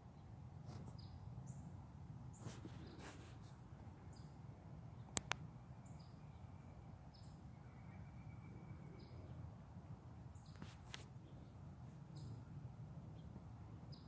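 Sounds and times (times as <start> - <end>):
small birds chirping: 0.0 - 9.6, 10.3 - 14.0
sharp clicks: 5.1 - 5.4.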